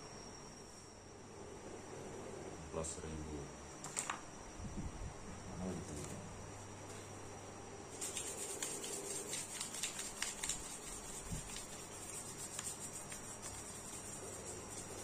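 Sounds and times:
sandpaper scratching wood: 8.0 - 15.0.

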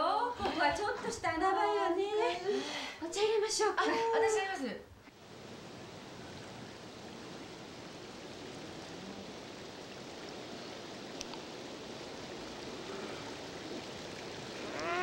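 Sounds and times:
river rushing over rocks: 5.2 - 15.0.

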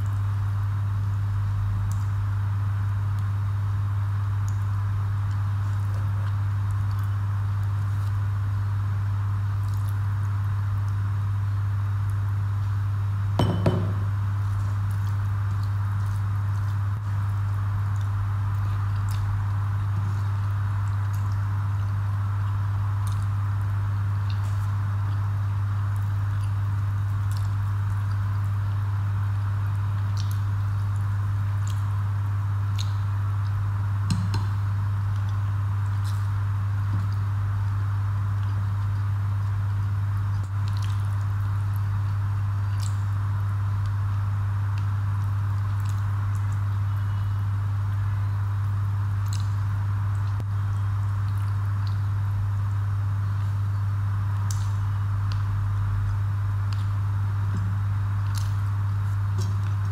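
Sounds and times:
steady low hum: 0.0 - 59.9
ceramic bowl knocking on table: 13.4 - 14.1
fingers mixing and chewing food: 17.9 - 23.4, 56.1 - 59.9.

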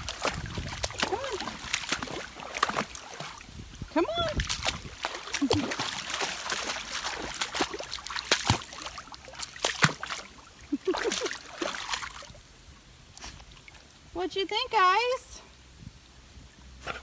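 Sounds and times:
water splashing from wading: 0.0 - 12.6
trickling stream: 0.0 - 16.8.

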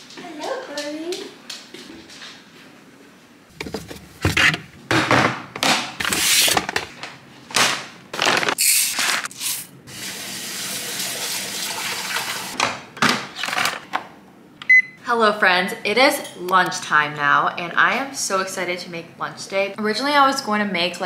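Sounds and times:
pot handling noise: 3.5 - 4.9
tap water running into pot: 9.9 - 12.6
rice cooker beep: 14.7 - 15.0.

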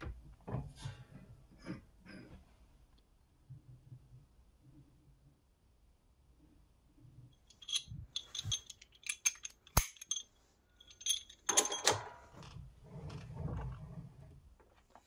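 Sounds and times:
metal handles clinking: 7.5 - 12.3.

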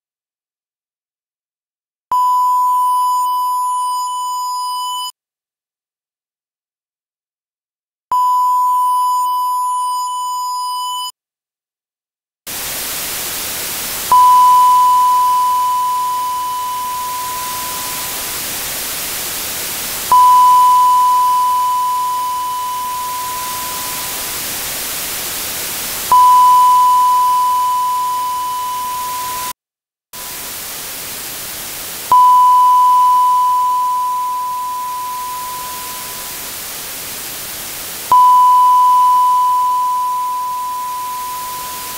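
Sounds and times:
sine-wave test ping: 2.1 - 5.1, 14.1 - 18.4, 20.1 - 24.4, 26.1 - 29.6, 32.1 - 36.5, 38.1 - 41.9
dither hiss: 12.5 - 28.5, 30.2 - 38.1
buzzy distorted tone: 12.5 - 29.5, 30.2 - 38.1, 38.8 - 41.9.

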